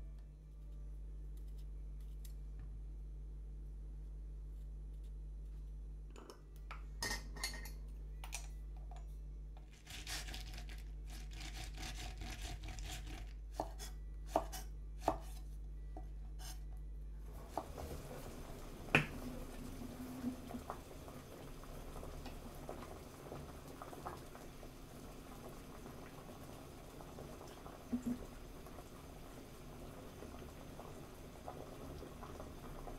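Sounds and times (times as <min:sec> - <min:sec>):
glassware and bottle clinking: 0:07.0 - 0:07.8
pods rubbing in salt: 0:09.7 - 0:13.4.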